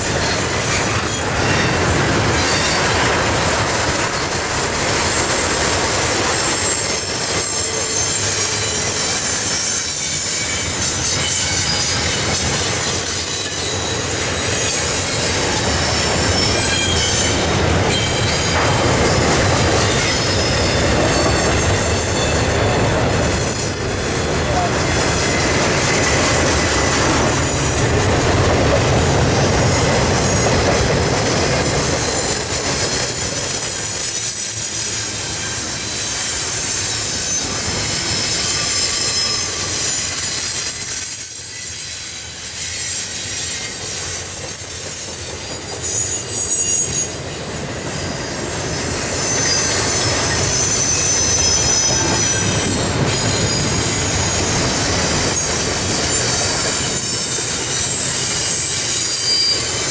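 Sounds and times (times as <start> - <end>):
high-pitched wheel squeals: 0.0 - 23.8, 29.4 - 59.9
steel wheels rumbling on rail: 0.0 - 59.9.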